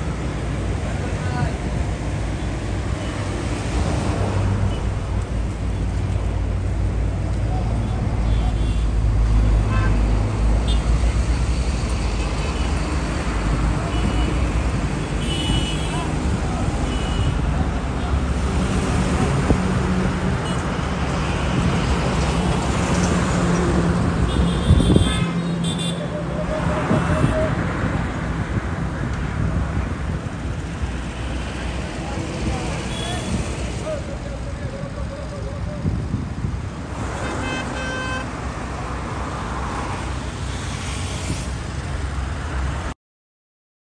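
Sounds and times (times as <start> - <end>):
highway traffic: 0.0 - 43.0
vehicle horn tooting: 24.3 - 26.0, 37.2 - 38.3.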